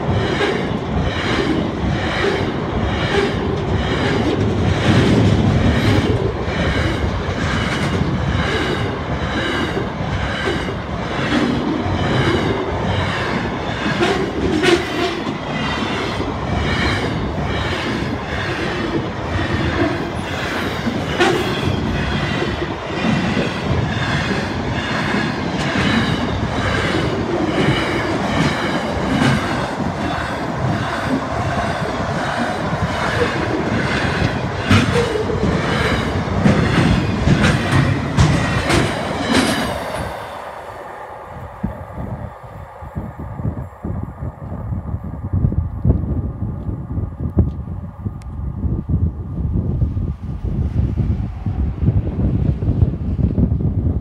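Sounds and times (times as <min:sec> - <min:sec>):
train wheels clacking: 0:00.0 - 0:40.4
freight train rumbling past: 0:00.0 - 0:54.0.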